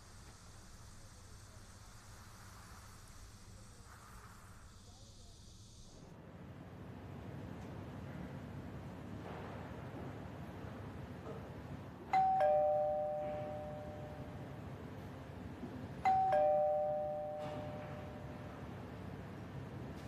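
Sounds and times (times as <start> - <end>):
two-tone doorbell chime: 12.1 - 14.4, 16.0 - 18.4.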